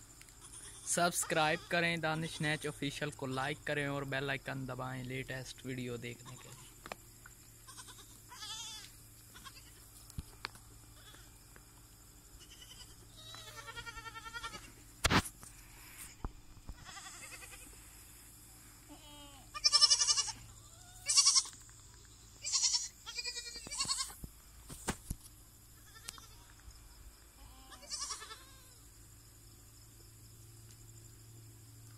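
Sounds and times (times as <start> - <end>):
goats bleating: 7.7 - 9.8, 12.4 - 14.8, 16.8 - 17.7, 18.9 - 21.6, 22.4 - 24.2, 27.4 - 28.8.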